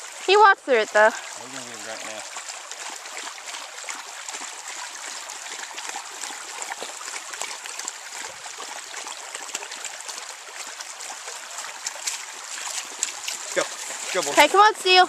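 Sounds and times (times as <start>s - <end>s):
creek water babbling over stones: 0.0s - 15.0s.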